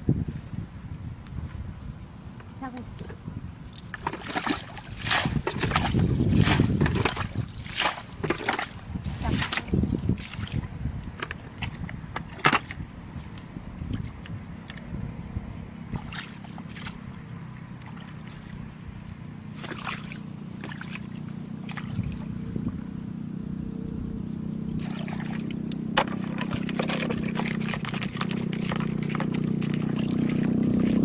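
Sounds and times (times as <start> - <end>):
steady low hum: 0.0 - 31.0
hands sloshing in muddy water: 3.7 - 10.7, 16.0 - 17.1, 19.5 - 22.3, 24.8 - 31.0
water splashes: 3.7 - 10.7, 15.9 - 17.1, 17.8 - 18.7, 19.5 - 22.3, 24.8 - 31.0.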